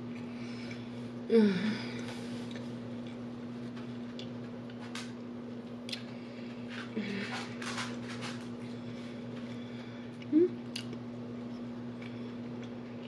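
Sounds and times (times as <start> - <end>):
steady low hum: 0.0 - 13.0
person humming mm: 1.3 - 2.1, 10.2 - 10.6.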